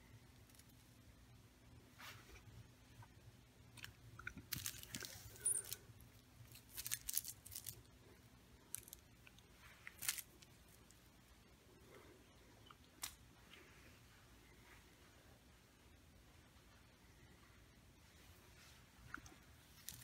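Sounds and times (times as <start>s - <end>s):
fabric toy rustling and crinkling: 4.5s - 5.8s, 6.4s - 7.9s, 8.6s - 11.1s, 18.0s - 20.0s.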